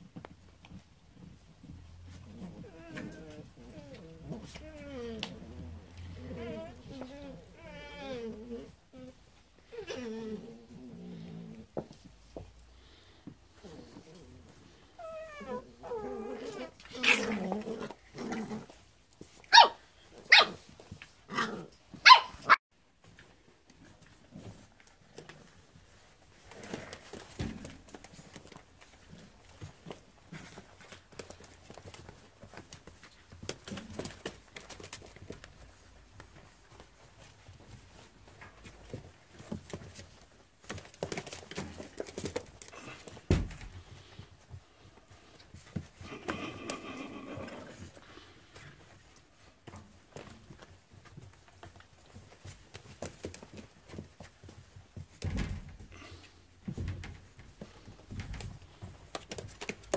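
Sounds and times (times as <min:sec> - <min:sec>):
puppies scuffling: 0:00.0 - 0:59.9
puppies yapping: 0:19.4 - 0:20.6, 0:21.4 - 0:22.6.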